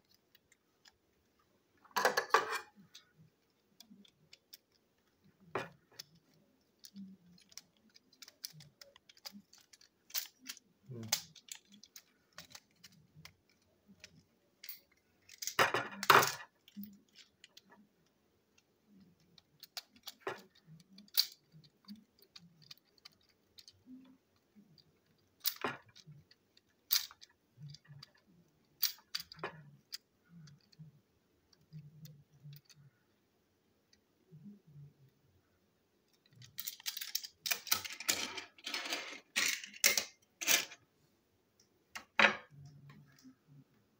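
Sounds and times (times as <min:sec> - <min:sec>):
plastic parts clattering: 0:01.8 - 0:17.8, 0:19.4 - 0:30.8, 0:36.1 - 0:40.8.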